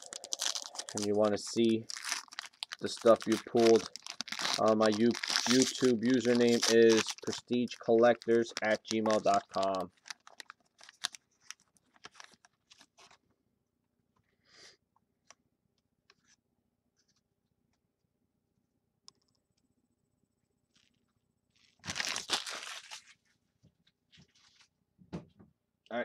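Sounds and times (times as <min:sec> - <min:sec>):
card handling ticks: 0:00.0 - 0:11.1
foil wrapper crinkling: 0:00.0 - 0:13.2, 0:21.6 - 0:23.2.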